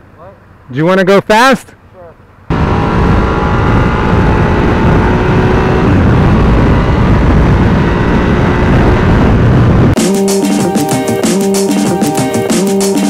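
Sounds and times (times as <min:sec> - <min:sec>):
motorcycle engine cruising: 0:02.5 - 0:10.0
wind rush over microphone: 0:02.5 - 0:10.0.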